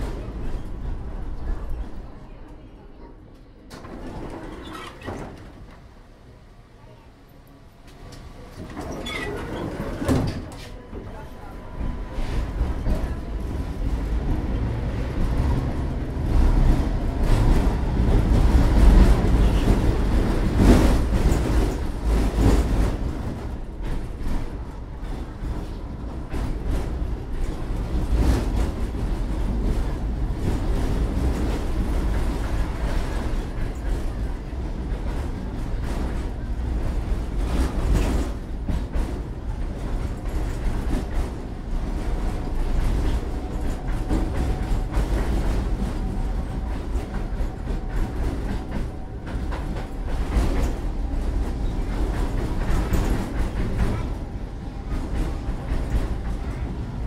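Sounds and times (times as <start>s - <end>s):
tram wheels rumbling on rails: 0.0s - 57.0s.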